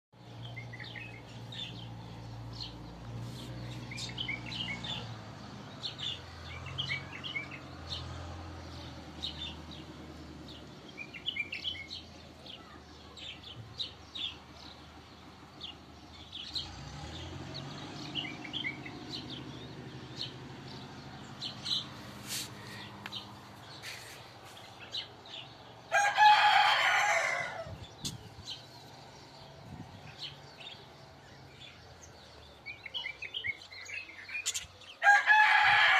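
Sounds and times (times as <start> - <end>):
small birds chirping: 0.2 - 35.9
rooster crowing: 25.9 - 27.8, 35.0 - 35.9.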